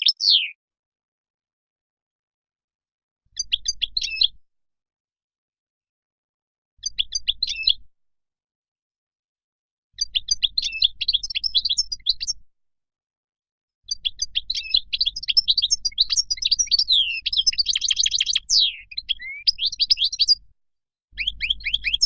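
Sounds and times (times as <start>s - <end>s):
goldfinch singing: 0.0s - 0.6s, 10.0s - 12.4s, 13.9s - 20.4s, 21.1s - 22.0s.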